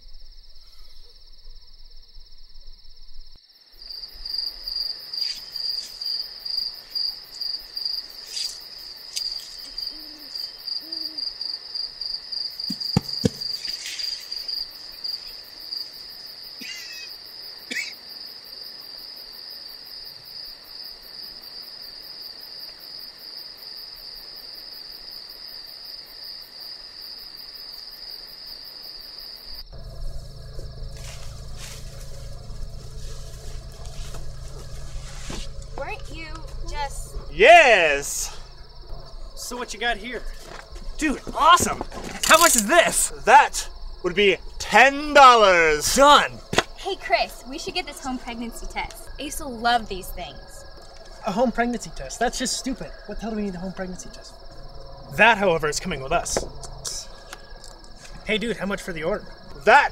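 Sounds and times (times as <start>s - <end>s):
crickets chirping: 0.0s - 59.9s
low hoots: 9.6s - 11.5s, 29.8s - 40.7s.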